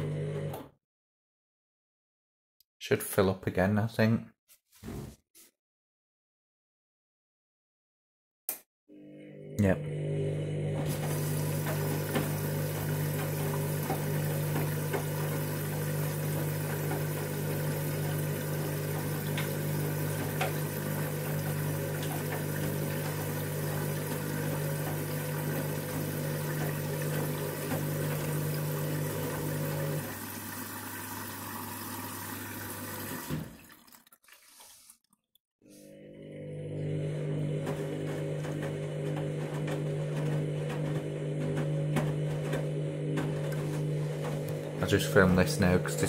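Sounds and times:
washing machine mains hum: 0.0 - 0.7, 8.9 - 34.0, 35.7 - 46.0
water rushing into washing machine: 0.0 - 0.7, 9.0 - 46.0.

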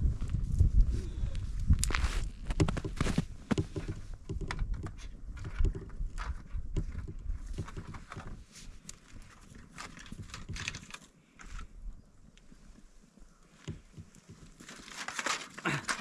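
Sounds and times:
stick scraping foil grill: 14.6 - 16.0.

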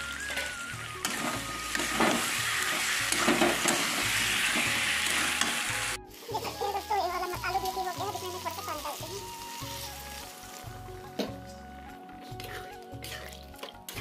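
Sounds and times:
background music: 0.0 - 14.0
curry sizzling in a pan: 0.0 - 14.0
metal spatula scraping: 0.2 - 6.8.

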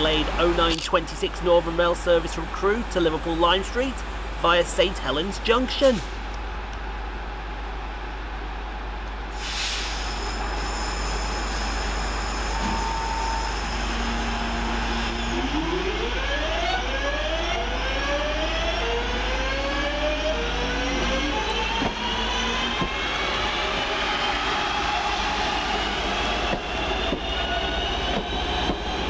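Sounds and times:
short hiss: 9.4 - 10.7
electric train motor whine: 9.9 - 16.3.

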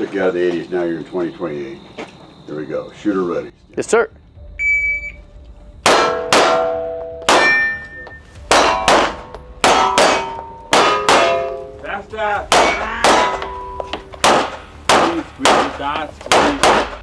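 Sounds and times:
pistol shots: 5.8 - 7.8, 8.5 - 11.7, 12.5 - 13.5, 14.1 - 17.0
steel target plate clanging: 5.9 - 17.0.

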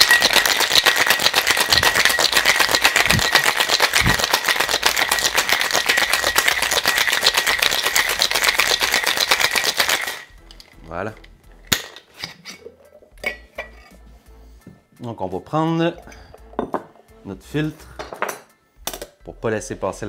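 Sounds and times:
ice rattling in cocktail shaker: 0.0 - 10.8.

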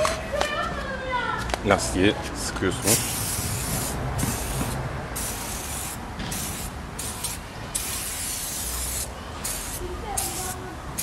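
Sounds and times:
aerosol can spraying hiss: 2.9 - 11.0.

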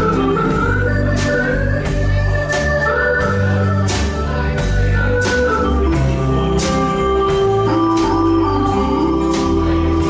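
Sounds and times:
acoustic guitar: 0.0 - 10.0
bass guitar: 0.0 - 10.0
drums: 0.0 - 10.0.

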